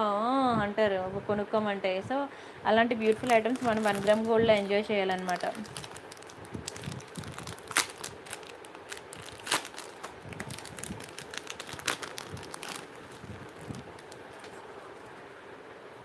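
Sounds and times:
plastic pouches crinkling: 3.0 - 14.6.

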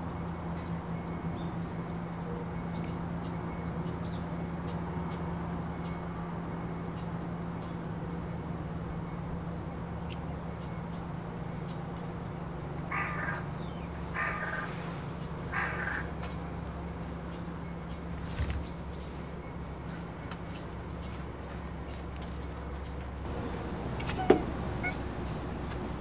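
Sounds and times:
crow cawing: 12.9 - 13.5, 14.1 - 14.7, 15.5 - 16.1, 23.4 - 25.2
steady low hum: 22.4 - 26.0.

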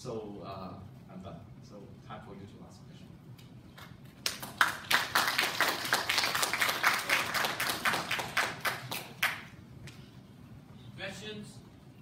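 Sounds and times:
audience applauding: 4.2 - 9.5.

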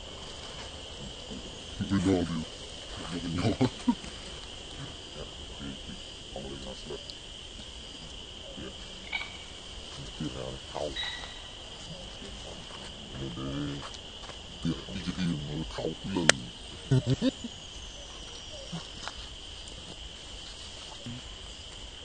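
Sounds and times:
people talking quietly: 0.0 - 21.8
high insect drone: 0.0 - 22.0.

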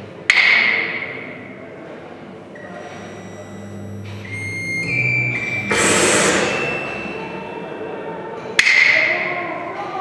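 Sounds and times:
sustained high electronic tones: 2.6 - 8.5.

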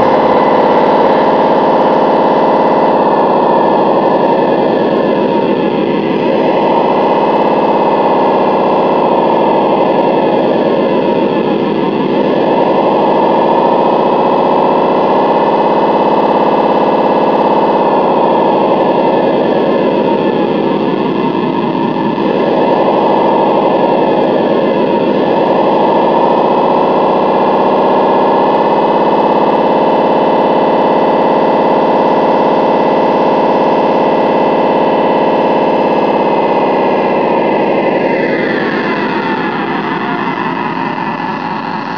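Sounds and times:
diesel engine through loudspeaker: 0.0 - 41.9.

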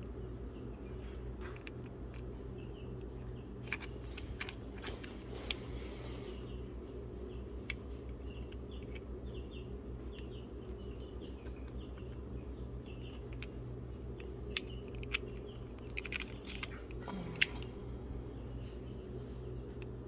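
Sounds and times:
steady low hum: 0.0 - 20.0
steel parts clicking: 3.6 - 6.2, 13.0 - 17.6.

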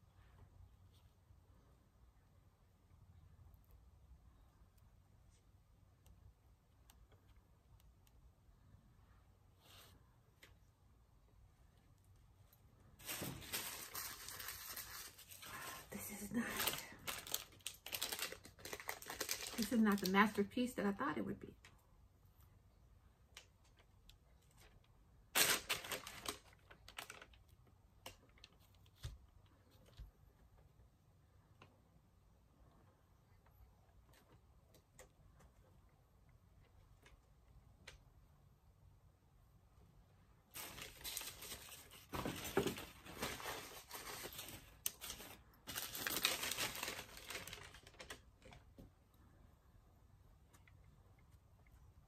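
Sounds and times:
crinkling and rustling by hand: 0.0 - 39.0, 39.6 - 52.0.

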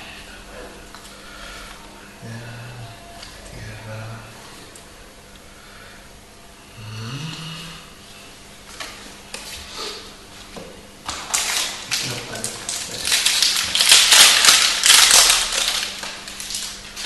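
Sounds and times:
foil wrapper crinkling and tearing: 11.1 - 17.0.

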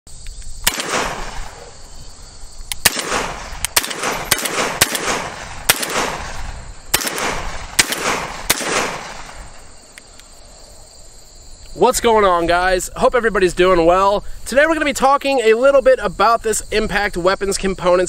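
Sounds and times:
shotgun blasts with echo: 0.6 - 1.9, 2.8 - 9.8.

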